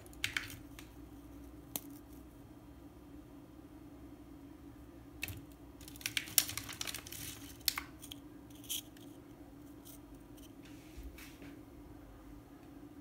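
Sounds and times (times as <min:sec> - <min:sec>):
plastic tray crackling: 0:00.0 - 0:00.9, 0:05.2 - 0:08.2
plastic rustle: 0:05.8 - 0:08.8.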